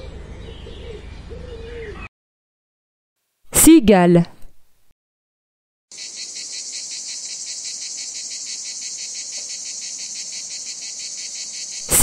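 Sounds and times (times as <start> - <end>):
cicadas buzzing: 5.9 - 12.0.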